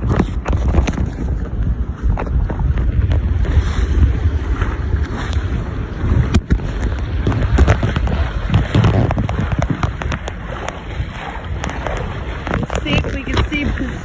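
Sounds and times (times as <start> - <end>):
water rushing along hull: 0.0 - 14.0
wind buffeting microphone: 0.0 - 14.0
sharp clicks and crackles: 6.2 - 14.0.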